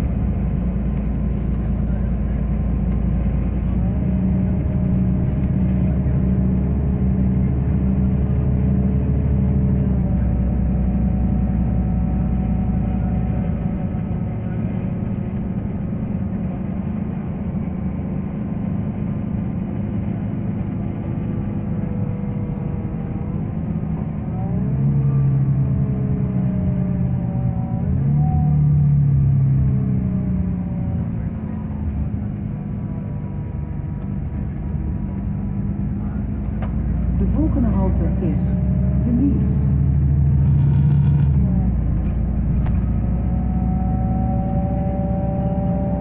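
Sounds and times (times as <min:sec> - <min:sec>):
bus engine drone: 0:00.0 - 0:46.0
road noise: 0:00.0 - 0:46.0.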